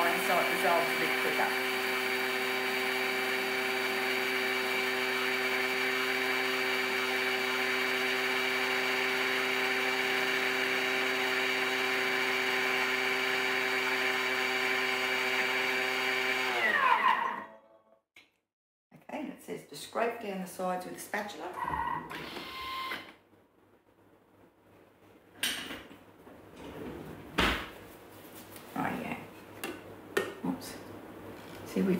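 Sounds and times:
blender motor whine: 0.0 - 17.5, 21.6 - 23.1.

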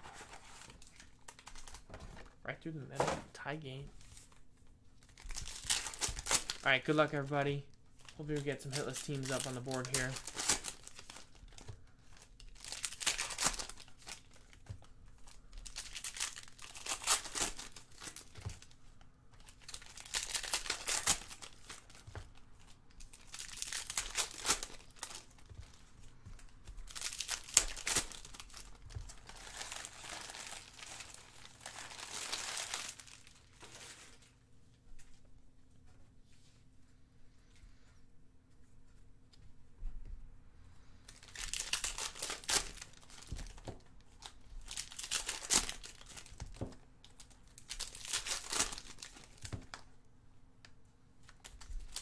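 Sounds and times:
card pack wrappers crinkling and tearing: 0.0 - 2.4, 5.0 - 34.3, 41.0 - 49.9, 51.2 - 52.0.

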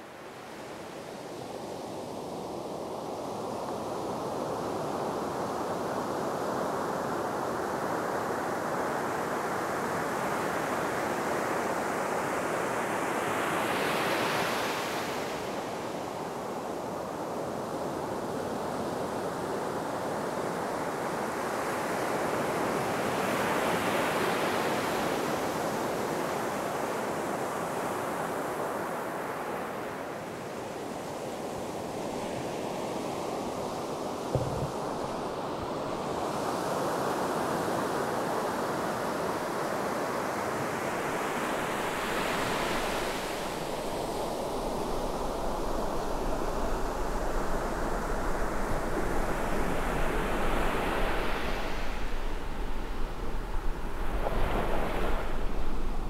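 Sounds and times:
ocean waves breaking: 34.2 - 36.2.

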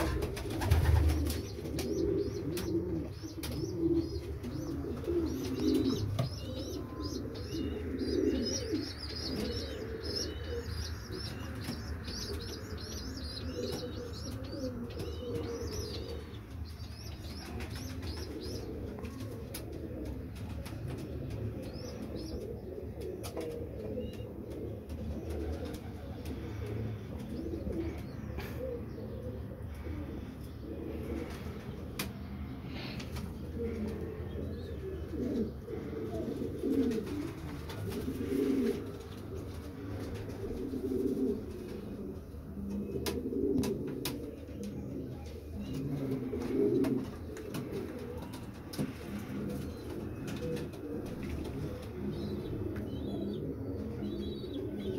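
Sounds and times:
pigeons cooing: 0.0 - 54.9.

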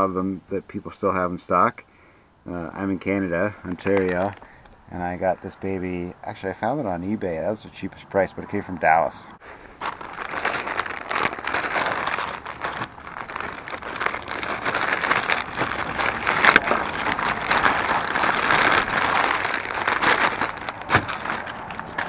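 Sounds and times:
plastic bags crinkling: 3.0 - 5.3, 9.4 - 22.0.

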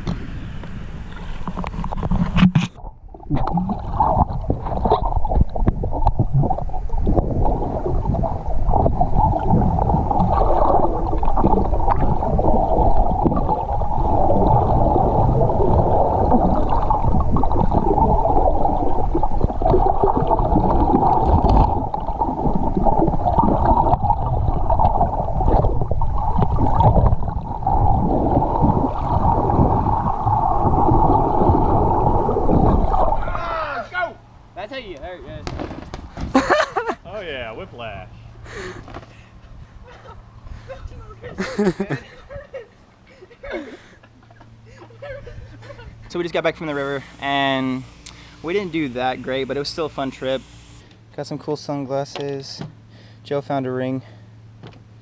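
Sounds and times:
muffled underwater river rushing: 0.0 - 34.6
camera housing knocks: 35.4 - 36.4.

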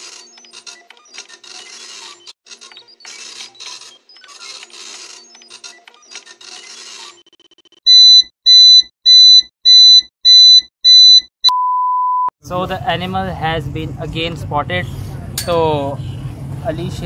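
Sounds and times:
loud electronic beeps: 7.2 - 12.3.

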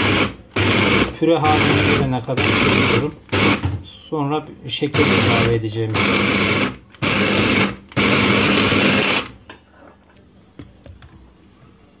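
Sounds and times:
food chopper grinding: 0.0 - 3.7, 4.9 - 9.3.

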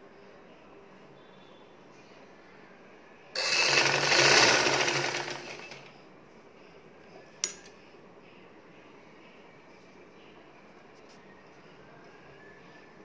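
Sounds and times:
sewing machine stitching: 3.4 - 5.9.

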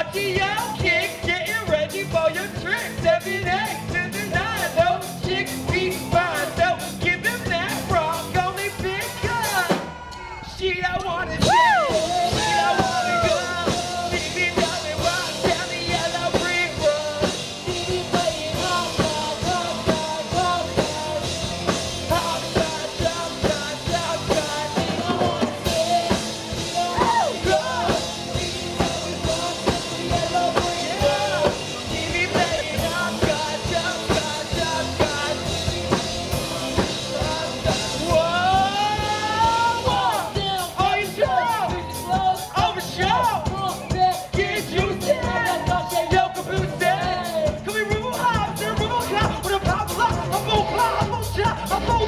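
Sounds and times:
drum kit: 0.0 - 52.0
person singing: 11.3 - 52.0.

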